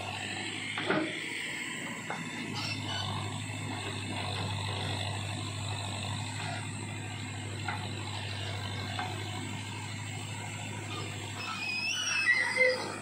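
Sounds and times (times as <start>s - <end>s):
backhoe digging soil: 0.0s - 13.0s
tractor diesel engine droning: 0.0s - 13.0s.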